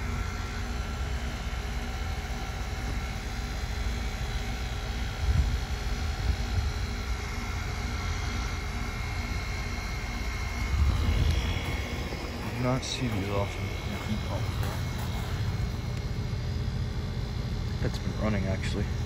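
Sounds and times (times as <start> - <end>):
heat pump fan and compressor drone: 0.0 - 19.0
low rumbles: 10.4 - 17.8.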